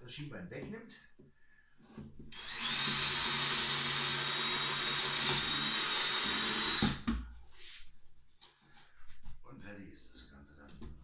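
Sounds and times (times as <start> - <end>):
cordless drill whining: 2.3 - 7.1.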